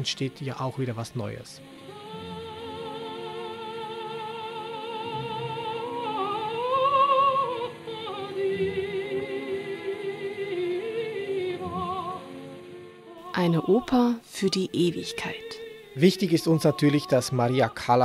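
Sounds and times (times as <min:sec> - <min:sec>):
operatic singing: 0:01.6 - 0:18.0.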